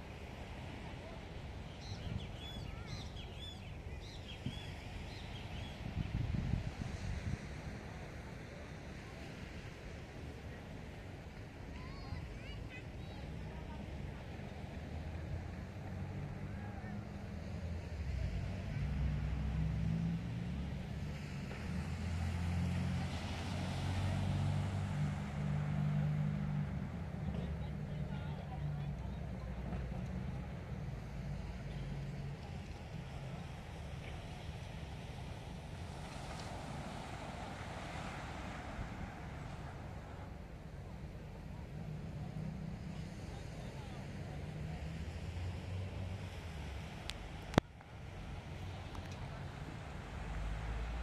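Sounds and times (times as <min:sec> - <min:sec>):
wash of noise: 0:00.0 - 0:51.0
wind buffeting microphone: 0:04.3 - 0:07.8.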